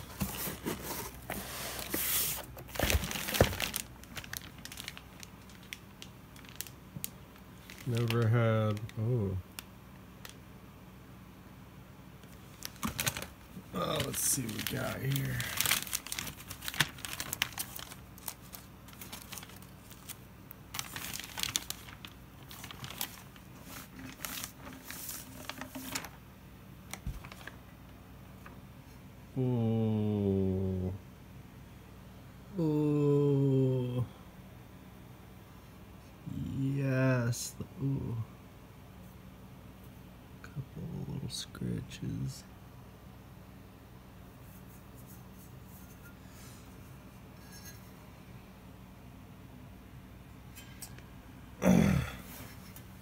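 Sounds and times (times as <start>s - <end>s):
cardboard box rustling: 0.0s - 5.0s, 13.9s - 26.2s, 26.9s - 27.6s
plastic wrapping crinkling: 0.0s - 10.4s, 12.2s - 26.2s, 26.9s - 27.7s.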